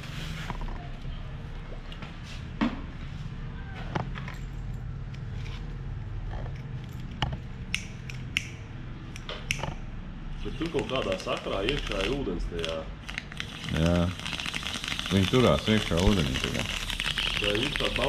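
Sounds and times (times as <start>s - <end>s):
lighter clicking: 7.7s - 9.6s.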